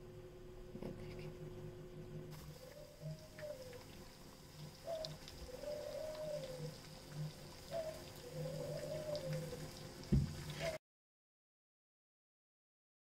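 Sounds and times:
food sizzling in oil: 0:02.3 - 0:10.8
dull knock: 0:10.1 - 0:10.4.

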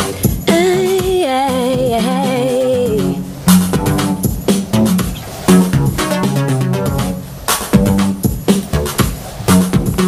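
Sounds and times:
woman singing: 0:00.0 - 0:03.3.

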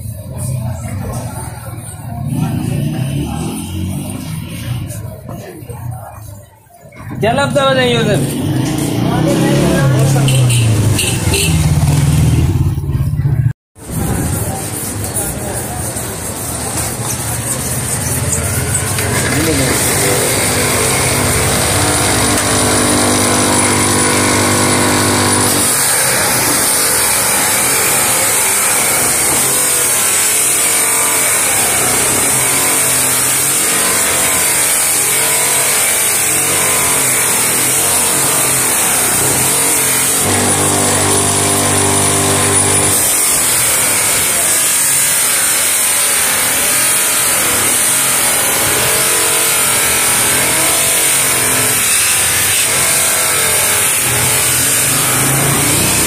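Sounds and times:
bench buffing machine humming: 0:14.4 - 0:56.0.

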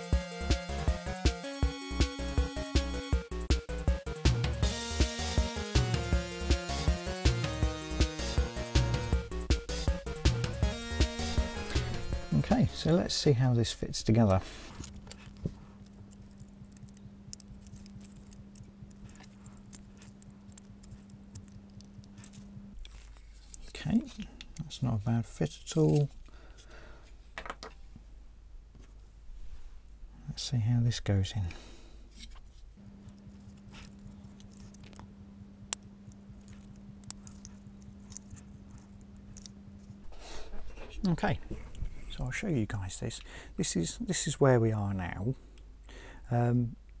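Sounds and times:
steady low hum: 0:03.1 - 0:47.0.

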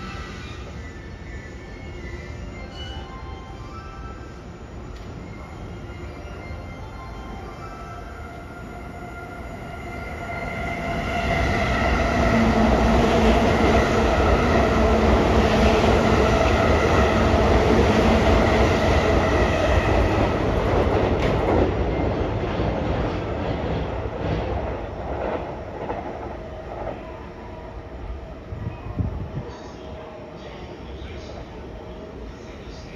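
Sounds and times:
electric train passing: 0:00.0 - 0:32.9.

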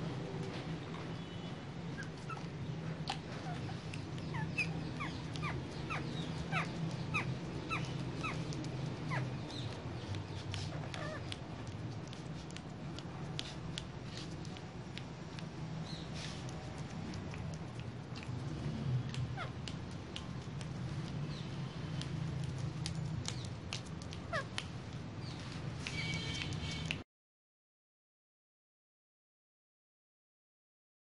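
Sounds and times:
parakeets squeaky calls: 0:03.4 - 0:10.0, 0:25.2 - 0:26.9.

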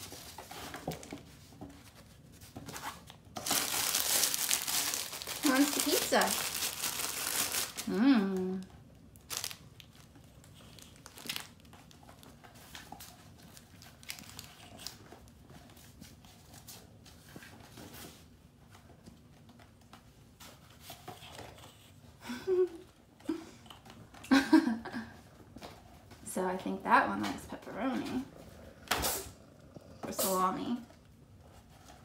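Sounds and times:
plush toy and box crinkling: 0:00.0 - 0:18.3.

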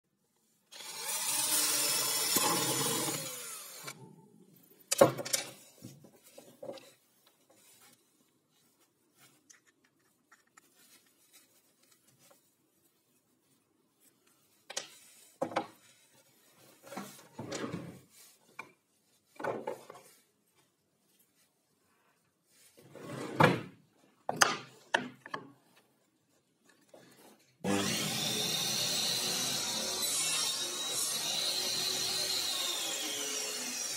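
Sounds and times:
cordless drill boring into wood: 0:00.7 - 0:04.0, 0:27.6 - 0:33.9.

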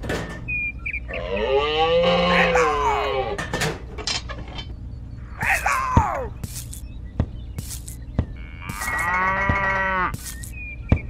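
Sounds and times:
cow mooing: 0:01.1 - 0:03.4, 0:08.4 - 0:10.2.

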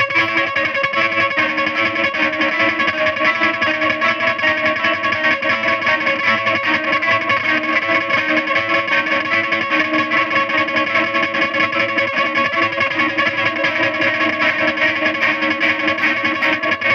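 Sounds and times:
pulsing electric guitar drone: 0:00.0 - 0:16.9.

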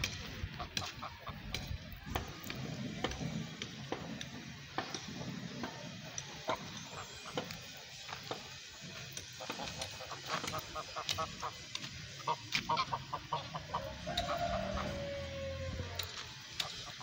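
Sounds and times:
geese honking and gabbling: 0:00.0 - 0:02.5, 0:05.9 - 0:17.0.

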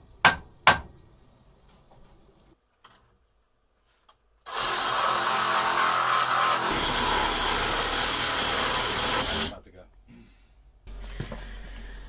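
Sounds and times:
reciprocating saw cutting wood: 0:04.5 - 0:09.6.

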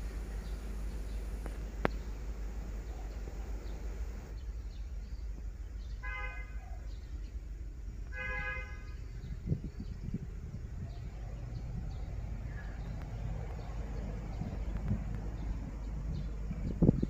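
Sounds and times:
low rumble of approaching train: 0:00.0 - 0:17.0
locomotive horn blasts: 0:06.0 - 0:06.6, 0:08.1 - 0:09.4.

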